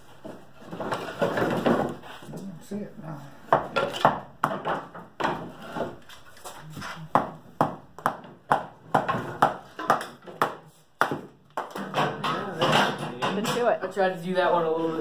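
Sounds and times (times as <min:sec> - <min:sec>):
hatchet knocking through kindling: 0:07.1 - 0:12.0.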